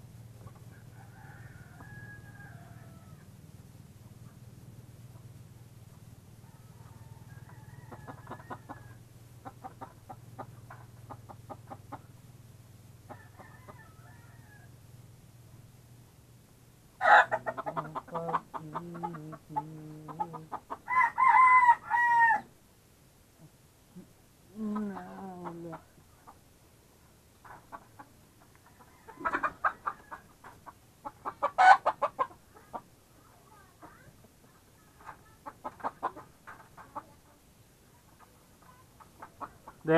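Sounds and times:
steady low hum: 0.0s - 21.0s
chickens clucking: 0.2s - 14.8s, 16.9s - 21.1s, 23.4s - 39.9s.

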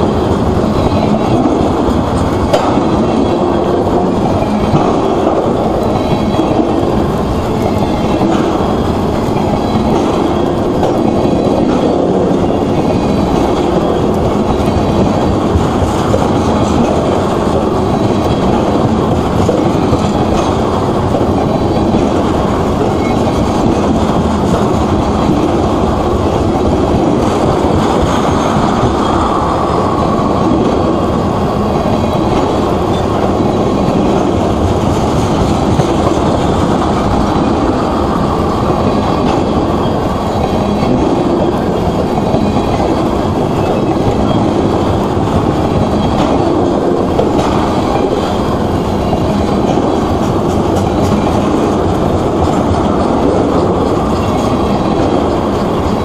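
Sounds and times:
freight train rolling past: 0.0s - 56.0s.

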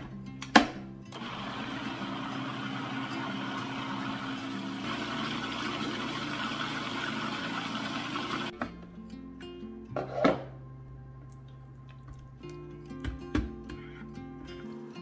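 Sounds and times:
food processor motor running: 1.2s - 8.5s.

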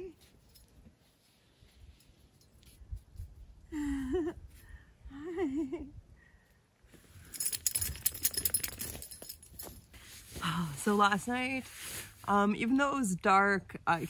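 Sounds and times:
clicks and rattles of fittings: 7.3s - 9.8s.

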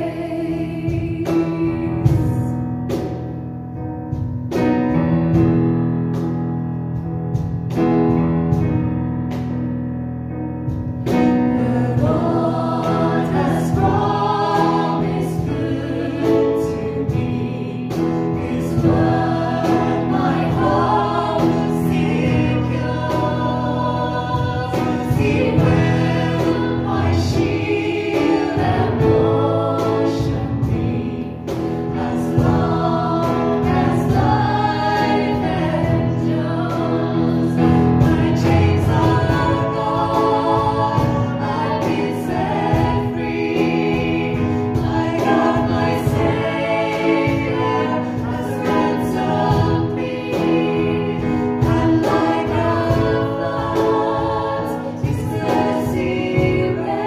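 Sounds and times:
group singing together: 0.0s - 3.2s, 11.0s - 57.0s.

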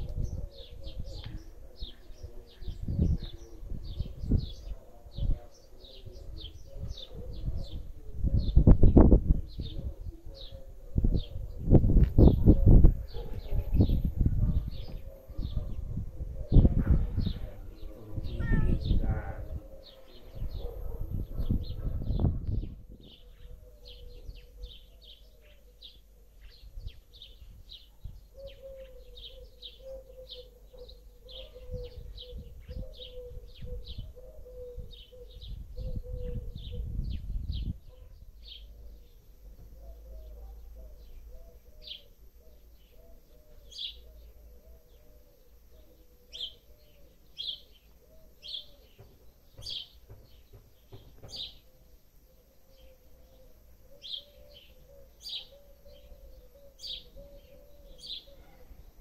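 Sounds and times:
wind rumbling on microphone: 0.0s - 24.5s, 31.6s - 38.0s
songbirds chirping: 0.0s - 59.0s.

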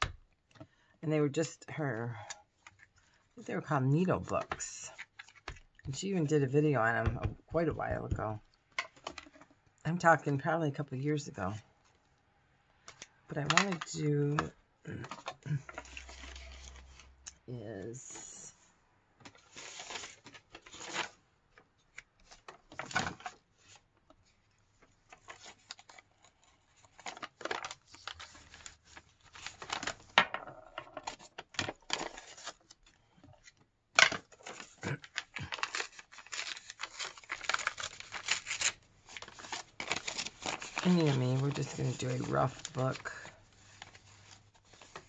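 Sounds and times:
paper rustling and crinkling: 4.2s - 5.8s, 12.8s - 17.2s, 19.2s - 45.0s.

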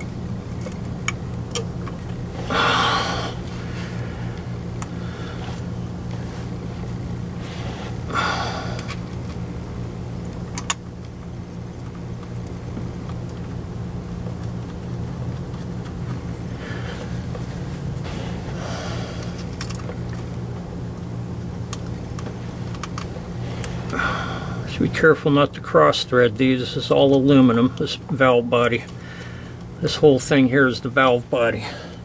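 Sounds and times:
steady low hum: 0.0s - 32.0s
heavy breaths: 2.4s - 6.6s, 7.4s - 9.0s, 16.4s - 19.5s, 23.4s - 24.7s, 29.0s - 29.7s, 31.6s - 32.0s
sharp clicks of metal parts: 10.5s - 10.8s, 19.2s - 19.9s, 21.7s - 23.1s.

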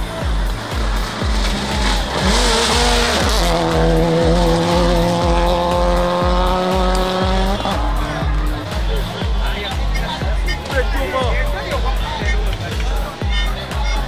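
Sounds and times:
music with steady bass beat: 0.0s - 14.0s
rally car engine passing: 0.1s - 10.7s.

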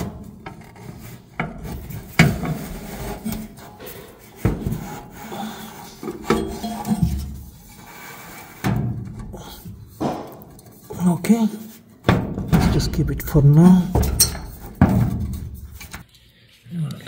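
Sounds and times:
blower fan unit scraping: 0.0s - 10.9s
sharp knocks: 10.0s - 10.4s.

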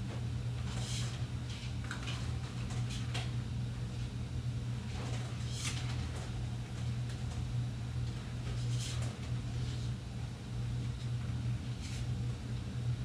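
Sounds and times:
steady low hum: 0.0s - 13.0s
sliding rustle of blinds: 4.9s - 6.3s, 8.5s - 9.9s.

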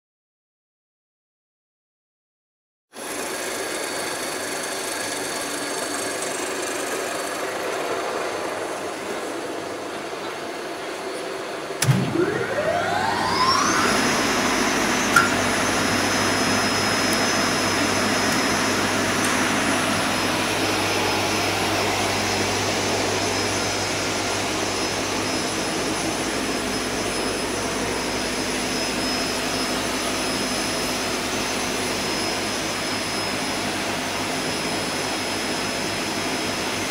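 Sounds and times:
steady mechanical hum: 3.1s - 36.2s
circular saw whining: 11.7s - 36.8s.

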